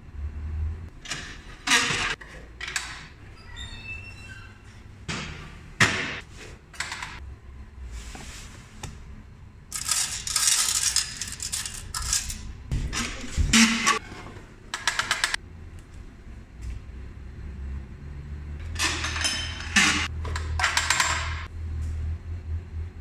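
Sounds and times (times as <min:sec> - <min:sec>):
coins clinking and clattering: 0:09.7 - 0:12.5.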